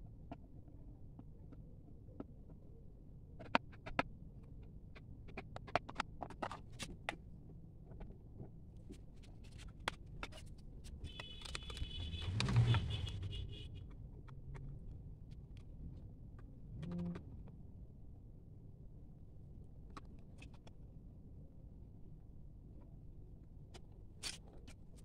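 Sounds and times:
plastic parts clicking and tapping: 11.1s - 11.9s.

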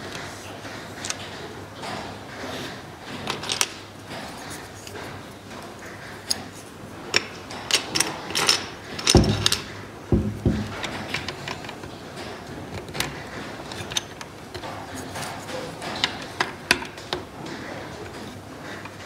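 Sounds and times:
heavier wooden knocks: 9.0s - 11.6s.

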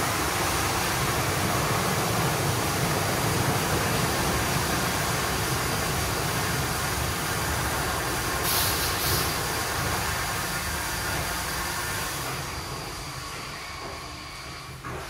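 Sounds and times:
car wash machinery rumble: 0.0s - 15.0s
loud hiss burst: 8.2s - 10.6s.

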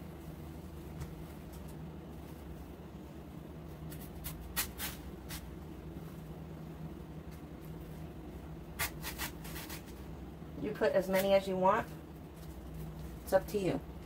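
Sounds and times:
steady low hum: 0.0s - 14.0s
flower stems rustling and scraping: 8.8s - 10.1s.

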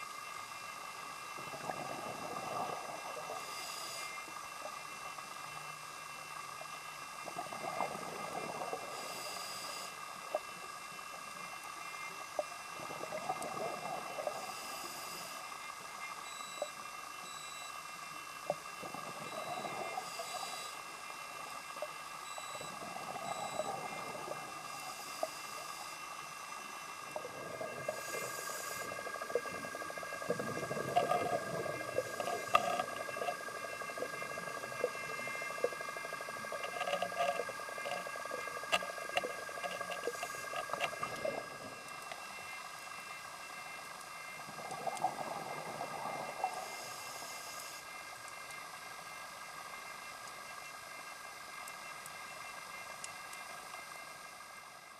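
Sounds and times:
faint steady whine: 0.0s - 54.9s
exhaled bubbles gushing: 1.4s - 3.2s, 27.1s - 41.8s
regulator inhale hiss: 2.5s - 4.4s, 8.8s - 10.0s, 14.2s - 15.5s, 19.8s - 21.2s, 27.7s - 29.4s, 46.2s - 47.9s.

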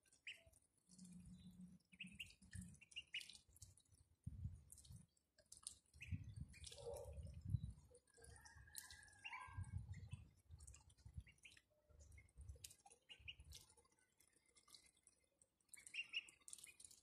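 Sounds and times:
ducklings dabbling in water: 0.0s - 17.0s
duckling peeps: 1.9s - 3.4s, 15.8s - 16.8s.

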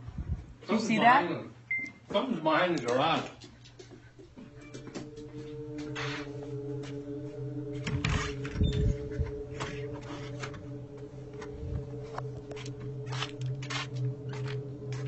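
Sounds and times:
steady low hum: 4.0s - 15.0s.

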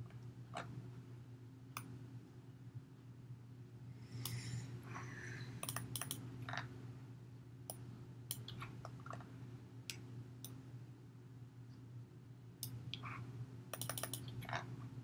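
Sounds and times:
low electrical hum: 0.0s - 15.0s
keyboard and mouse clicks: 5.6s - 6.2s, 7.7s - 9.2s, 13.7s - 14.6s.

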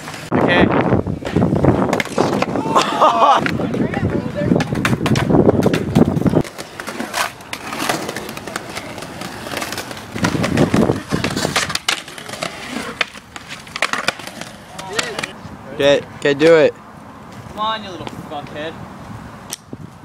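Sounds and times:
skateboard wheels rolling on concrete: 0.0s - 20.0s
skateboard clacks and knocks: 1.2s - 15.4s.

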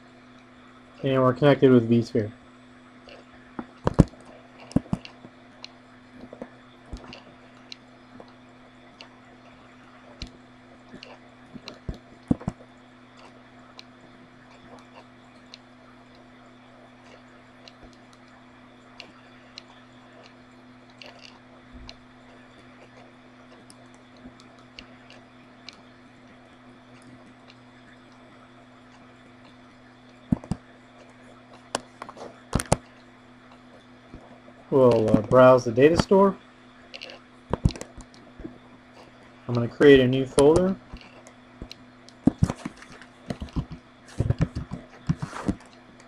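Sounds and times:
low hum: 0.0s - 46.0s
computer mouse clicks: 30.3s - 30.6s, 31.6s - 32.9s, 36.9s - 38.2s.

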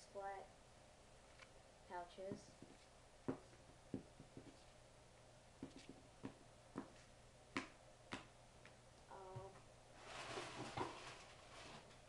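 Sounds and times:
rummaging in cardboard box: 10.0s - 11.9s.

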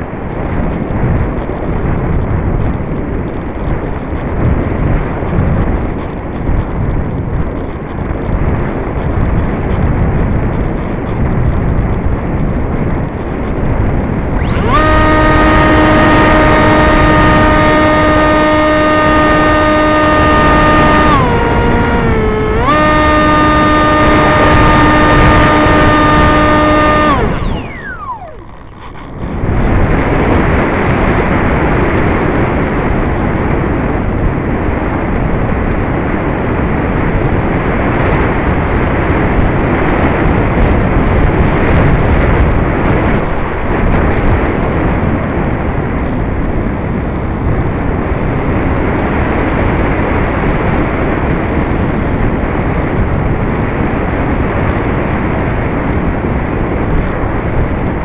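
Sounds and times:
faint high whine: 14.1s - 30.3s.

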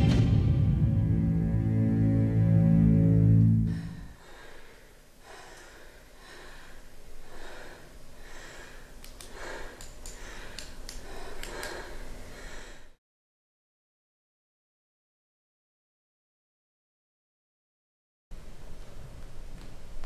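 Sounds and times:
low droning music note: 0.0s - 4.1s
rhythmic panting breaths: 3.6s - 13.0s
faint clicks: 9.0s - 12.0s.

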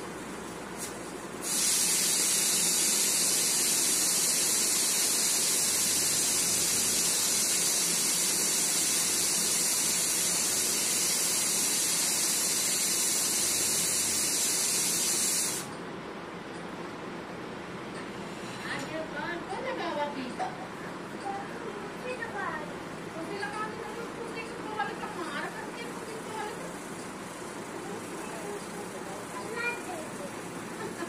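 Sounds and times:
loud high hiss: 1.4s - 15.8s.

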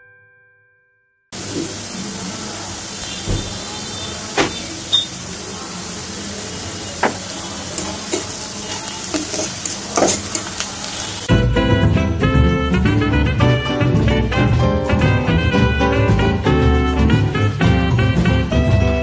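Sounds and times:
onions sizzling in hot oil: 1.4s - 11.3s.

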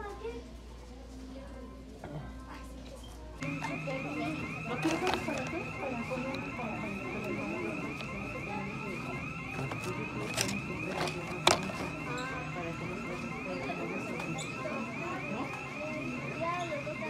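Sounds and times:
faint background voices: 0.0s - 17.0s
high electronic warbling alarm: 3.4s - 17.0s.

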